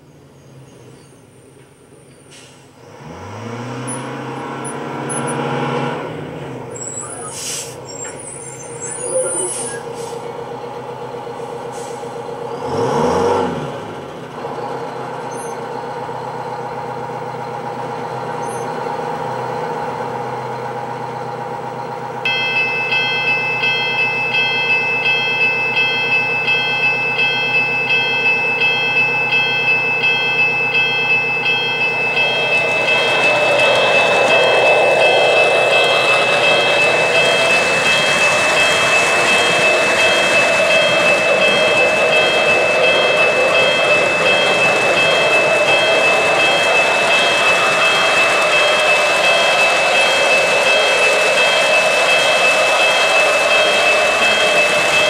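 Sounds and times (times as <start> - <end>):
crossing signal bell ringing: 7.9 - 10.0, 15.4 - 55.0.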